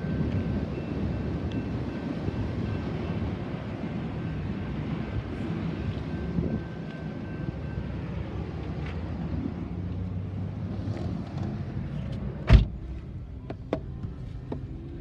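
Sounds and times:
road vehicles rumbling: 0:00.0 - 0:15.0
car door slamming: 0:12.4 - 0:14.0.

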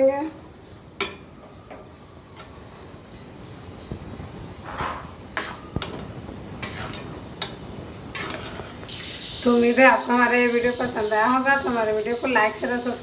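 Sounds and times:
spatula scraping pan: 0:06.6 - 0:07.5, 0:08.1 - 0:09.5.

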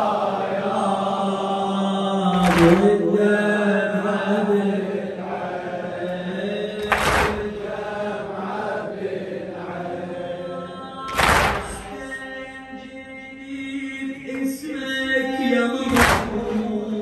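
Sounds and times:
men chanting a slow lament: 0:00.0 - 0:17.0
hands striking chests: 0:02.4 - 0:02.9, 0:06.8 - 0:07.6, 0:11.1 - 0:12.0, 0:15.9 - 0:16.5.

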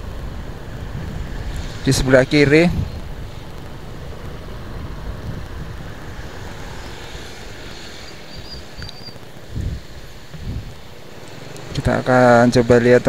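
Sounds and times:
vehicle engine and road noise: 0:00.0 - 0:13.0
faint high chirps: 0:08.0 - 0:09.2.

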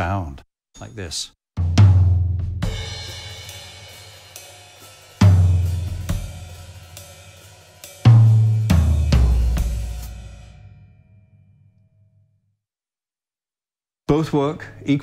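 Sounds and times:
heavy low drum strokes: 0:01.7 - 0:10.6
ringing cymbal and hi-hat: 0:02.6 - 0:10.8
smaller drum hits: 0:08.0 - 0:11.0.

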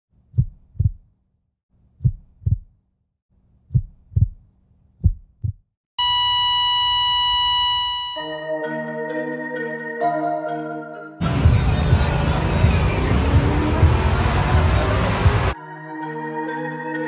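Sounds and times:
heartbeat double thumps: 0:00.3 - 0:01.1, 0:02.0 - 0:02.8, 0:03.7 - 0:05.6, 0:11.4 - 0:15.6
heart monitor flatline beep: 0:06.0 - 0:08.4.

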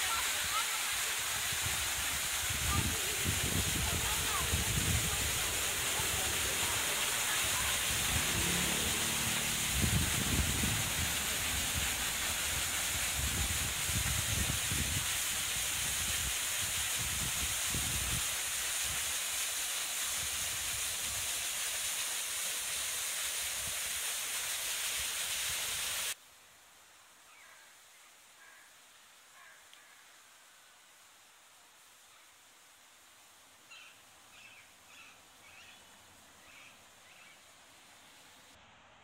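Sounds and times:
water falling over rocks: 0:00.0 - 0:26.2
low rumbling: 0:03.6 - 0:12.2.

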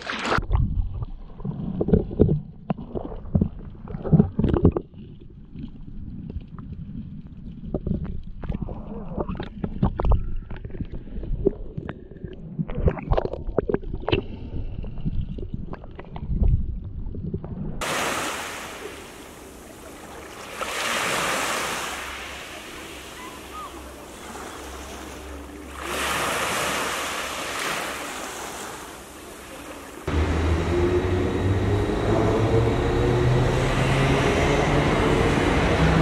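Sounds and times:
muffled underwater sloshing: 0:00.0 - 0:30.1
underwater knocks and clicks: 0:00.4 - 0:17.8
waves washing onto pebble beach: 0:17.8 - 0:30.1.

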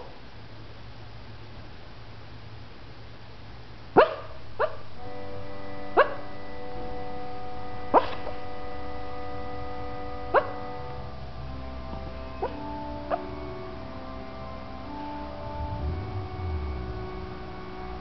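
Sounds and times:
dog yipping in its sleep: 0:04.0 - 0:04.8, 0:08.0 - 0:08.2.

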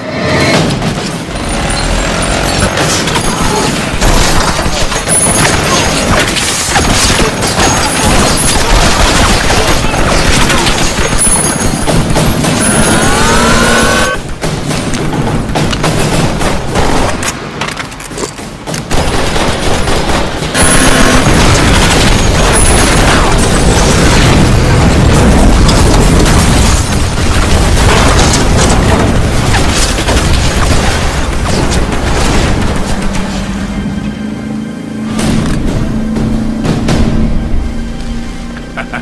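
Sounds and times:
rumble of explosions: 0:00.0 - 0:39.0
gunshots: 0:00.3 - 0:17.6, 0:18.4 - 0:33.5.

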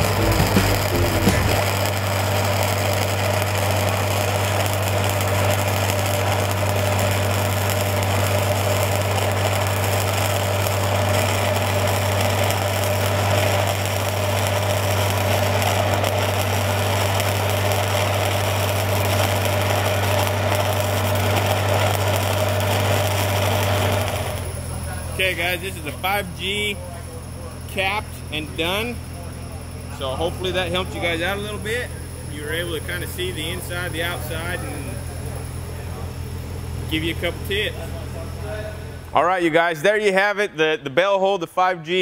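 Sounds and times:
low hum: 0:00.0 - 0:02.1
welding arc crackling and hissing: 0:00.0 - 0:25.6, 0:31.0 - 0:35.4.

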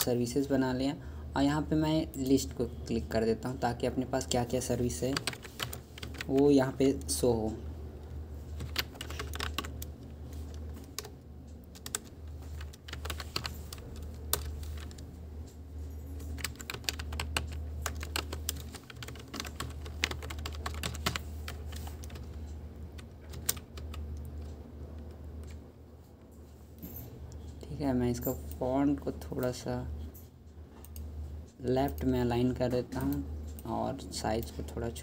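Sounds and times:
steady low hum: 0:00.0 - 0:35.0
typing on a keyboard: 0:04.9 - 0:07.1, 0:08.6 - 0:09.9, 0:10.5 - 0:15.0, 0:16.2 - 0:22.4, 0:23.0 - 0:25.6.

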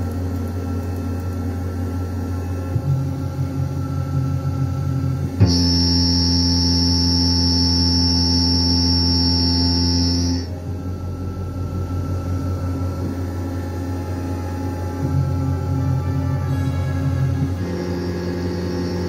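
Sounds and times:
high-pitched whine: 0:01.6 - 0:19.0
milling machine cutting steel: 0:17.5 - 0:19.0.

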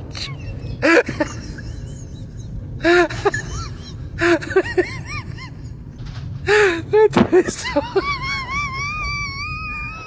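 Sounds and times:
person crying out: 0:07.8 - 0:10.0.

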